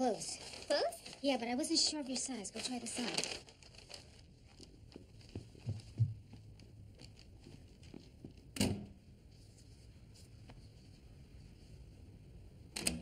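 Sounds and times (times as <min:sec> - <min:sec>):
soft knocks and thuds: 0:05.3 - 0:06.4.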